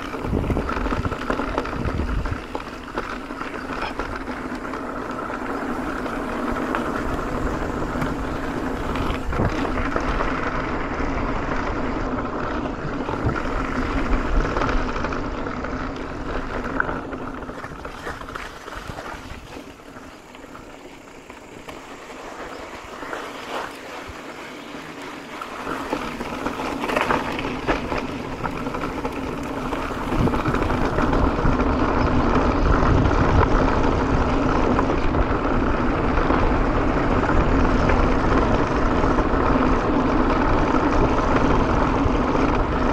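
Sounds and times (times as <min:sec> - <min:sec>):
bike knocks and rattles: 0:00.0 - 0:10.8, 0:25.4 - 0:35.6
wind rushing over microphone: 0:00.0 - 0:20.8, 0:21.4 - 0:42.9
bike tyre noise: 0:00.0 - 0:42.9.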